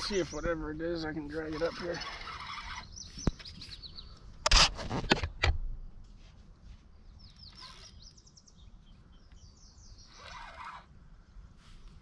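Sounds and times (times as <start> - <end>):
bird chirping: 0.0 - 4.3, 6.9 - 10.9.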